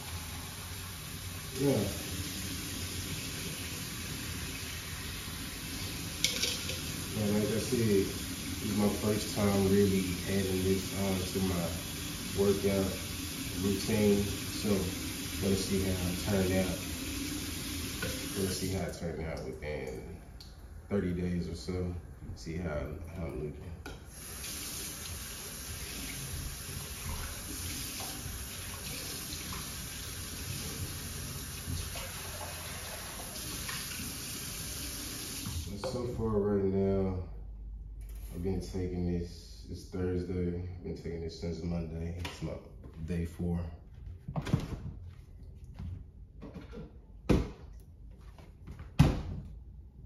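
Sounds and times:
faucet water streaming into cup: 0:00.0 - 0:19.0, 0:24.1 - 0:36.0
kitchen knocks and clunks: 0:44.3 - 0:45.0, 0:46.4 - 0:47.7, 0:48.7 - 0:49.6.

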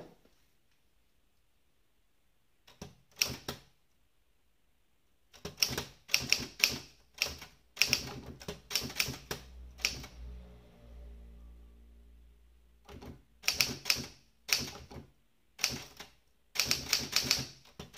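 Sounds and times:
manual typewriter typing: 0:02.7 - 0:03.7, 0:05.3 - 0:10.1, 0:12.8 - 0:17.9.

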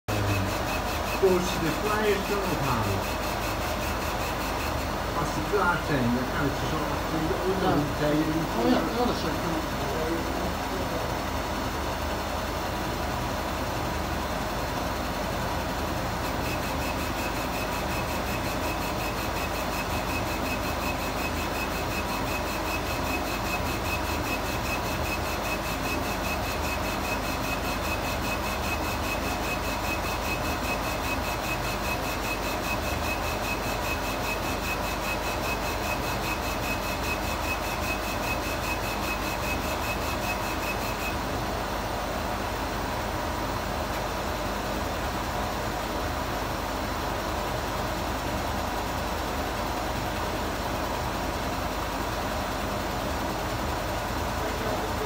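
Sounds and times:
pulsing high whine: 0:00.1 - 0:10.0, 0:16.1 - 0:41.2
laser engraver machine hum: 0:00.1 - 0:55.0.

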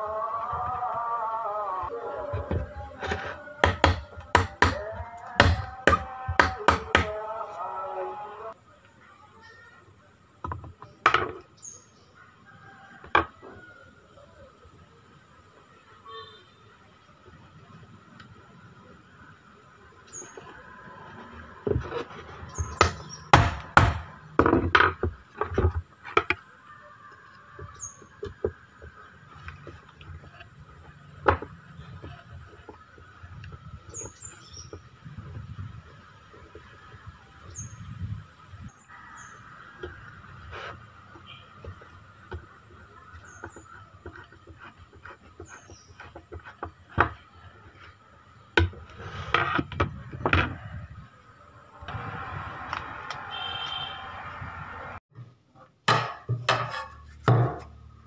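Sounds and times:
sharp knocks: 0:22.7 - 0:25.1, 0:55.9 - 0:57.8
loud knocks or scrapes: 0:48.6 - 0:50.7, 0:55.9 - 0:57.9.

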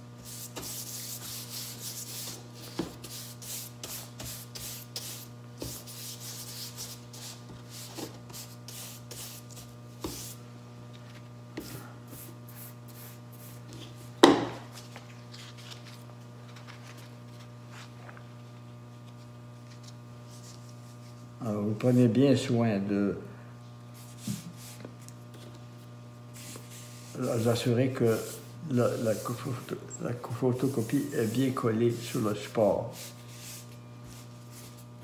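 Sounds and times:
paintbrush scrubbing canvas: 0:00.2 - 0:10.4, 0:11.6 - 0:13.7, 0:24.0 - 0:25.0, 0:26.3 - 0:35.0.

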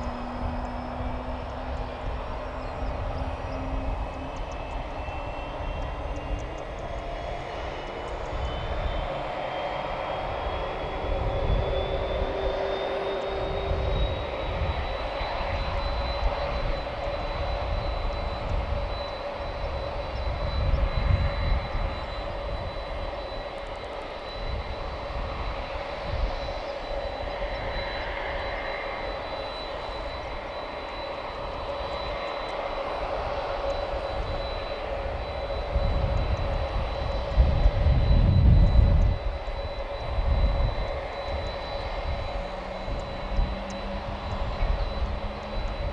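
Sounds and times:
gusty low rumbling: 0:00.0 - 0:23.3, 0:33.0 - 0:45.9
jet turbine whine: 0:00.0 - 0:45.9
low hum: 0:00.0 - 0:45.9.

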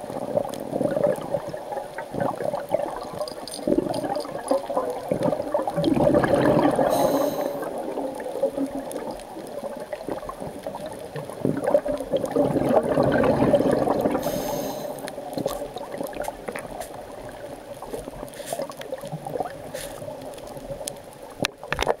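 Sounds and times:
bubbling exhalations underwater: 0:00.0 - 0:20.3
regulator inhalation hiss: 0:06.9 - 0:07.7, 0:14.2 - 0:15.1.

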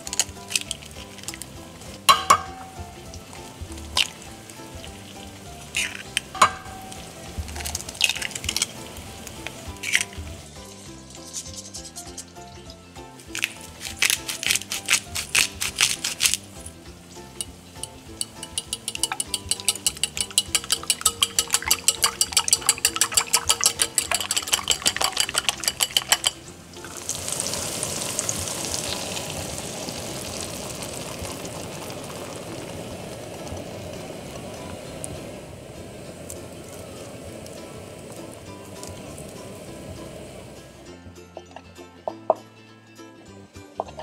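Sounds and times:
pepper mill grinding: 0:00.0 - 0:02.9, 0:03.9 - 0:29.1
eggs beaten in glass bowl: 0:00.0 - 0:16.5, 0:17.2 - 0:27.0
egg sizzling in hot pan: 0:00.0 - 0:40.9.

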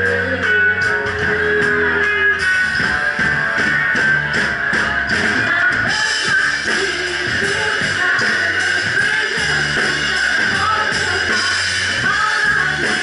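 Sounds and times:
electric guitar strumming: 0:00.0 - 0:13.0
live rock band playing: 0:00.0 - 0:13.0.

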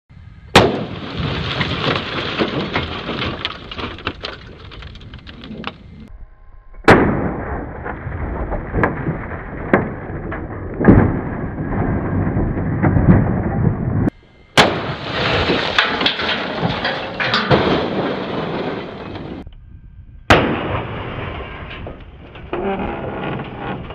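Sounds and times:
gunshots: 0:00.6 - 0:01.4, 0:06.9 - 0:07.8, 0:14.6 - 0:15.0, 0:20.3 - 0:21.2
scattered cracks: 0:00.6 - 0:06.0, 0:06.9 - 0:19.4.

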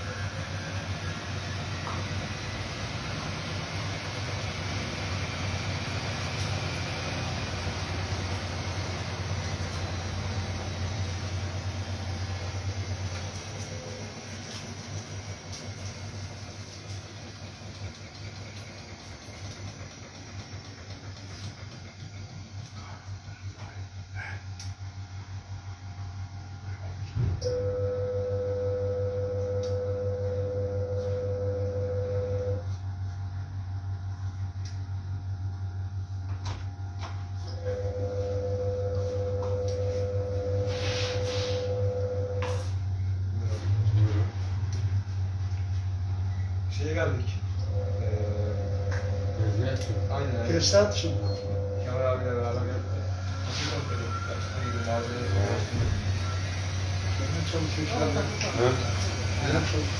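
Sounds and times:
washing machine motor hum: 0:00.0 - 0:59.9
steady whine: 0:25.6 - 0:59.9.

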